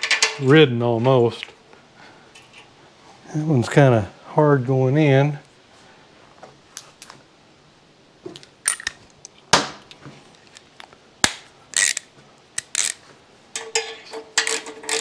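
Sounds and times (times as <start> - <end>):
hand tools clicking on metal: 11.8 - 15.0.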